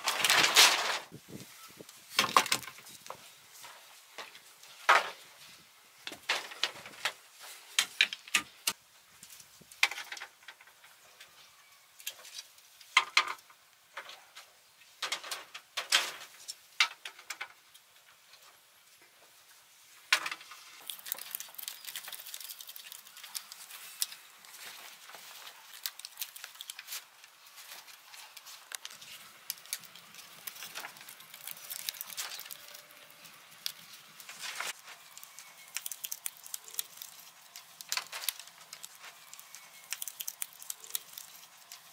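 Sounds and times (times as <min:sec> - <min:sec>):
bamboo strips rustling and scraping: 0:00.0 - 0:41.9
bamboo poles knocking together: 0:02.1 - 0:03.2.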